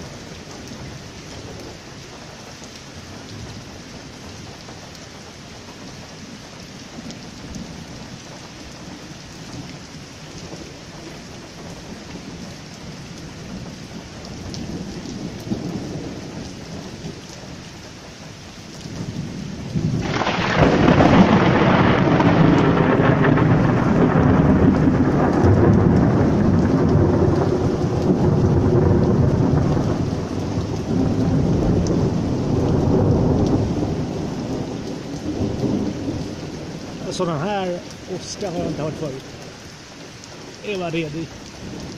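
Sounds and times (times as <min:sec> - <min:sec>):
heavy rain: 0:00.0 - 0:41.9
thunder rumbling: 0:08.8 - 0:17.6, 0:18.9 - 0:39.5.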